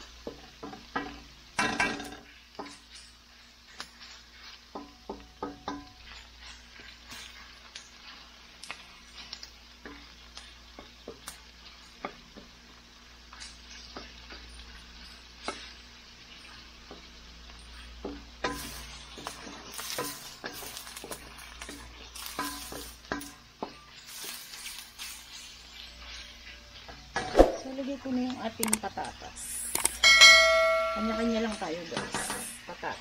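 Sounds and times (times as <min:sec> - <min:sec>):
spatula scraping in a wok: 0:00.0 - 0:28.3
frying sizzle: 0:00.0 - 0:33.0.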